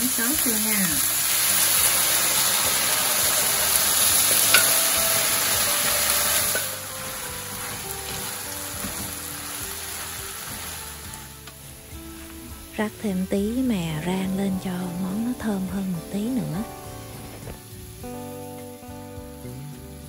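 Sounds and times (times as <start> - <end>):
sauce sizzling in frying pan: 0.0 - 20.0
wooden spoon stirring pan: 0.1 - 12.8.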